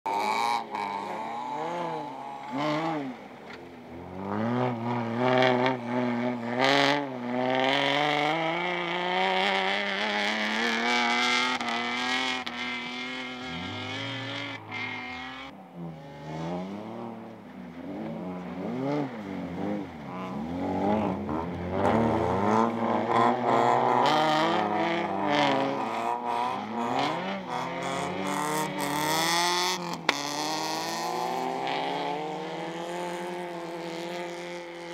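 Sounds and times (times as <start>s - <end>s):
car engines revving hard: 0.1s - 34.9s.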